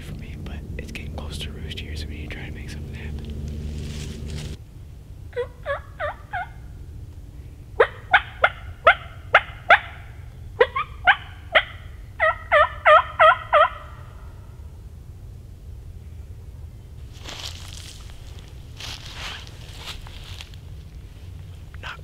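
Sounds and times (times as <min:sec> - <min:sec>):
turkey yelping: 0:05.4 - 0:06.7, 0:07.8 - 0:14.3.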